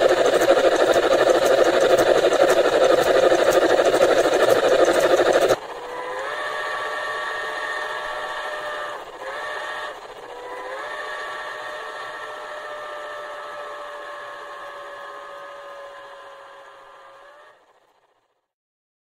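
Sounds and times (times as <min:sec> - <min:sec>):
model locomotive motor and gears clattering: 0:00.0 - 0:18.5
steam whistle blasts: 0:05.9 - 0:17.5.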